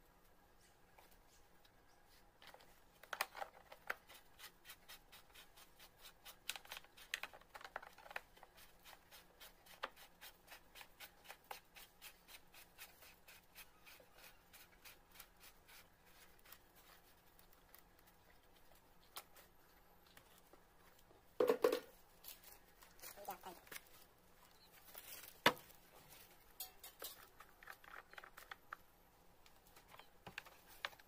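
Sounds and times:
plastic cover clicking and knocking: 21.4 - 21.9.

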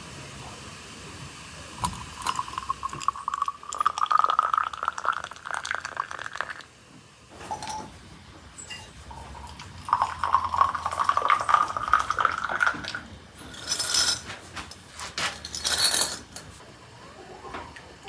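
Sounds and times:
hot water pouring into a glass: 1.8 - 6.8, 9.1 - 14.2
glass clinking: 7.4 - 7.9, 8.6 - 12.6.

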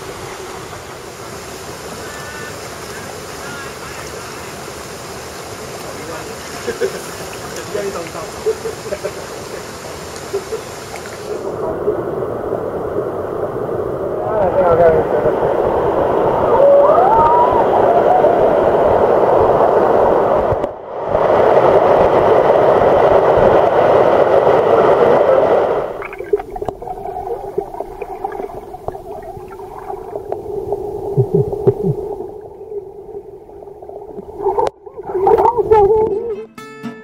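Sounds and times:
stream water rushing over rocks: 0.0 - 13.4, 18.6 - 36.2
muffled underwater water hum: 0.0 - 36.3
underwater knocks and bubbling: 26.0 - 36.2.

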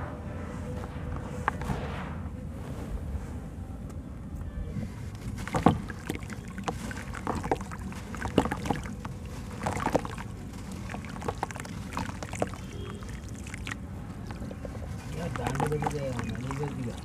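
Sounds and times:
low rumble: 0.0 - 5.2
dirt crackling and splashing in water: 5.0 - 17.0.

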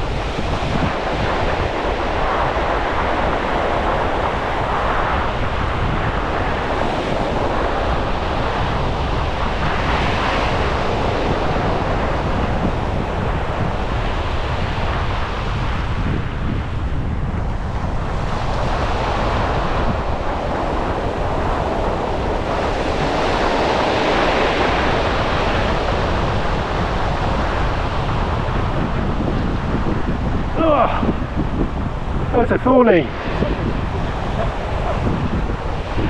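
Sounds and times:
surf washing up a beach: 0.0 - 36.0
wind rumbling on microphone: 0.0 - 36.0.

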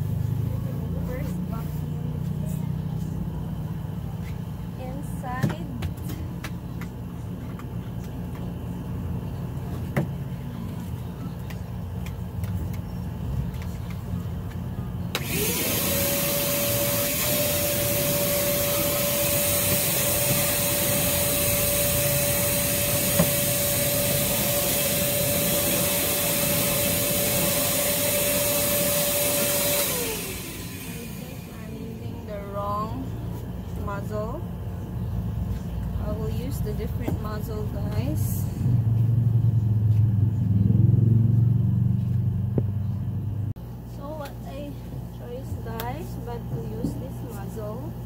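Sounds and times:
vacuum cleaner running: 13.5 - 34.9
low background rumble: 30.9 - 48.0.

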